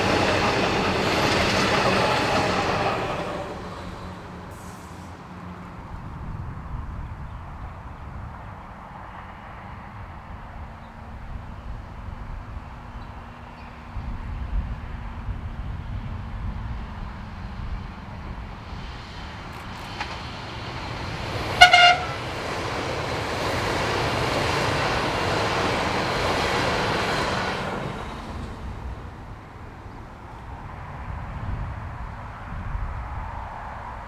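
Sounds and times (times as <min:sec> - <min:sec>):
train wheels rumbling on rail: 0:00.0 - 0:05.9, 0:12.1 - 0:34.0
train horn toot: 0:21.5 - 0:22.3.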